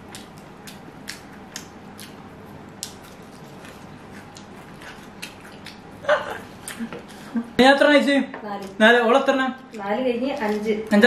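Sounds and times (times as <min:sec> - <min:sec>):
people chewing food: 0:00.0 - 0:07.6.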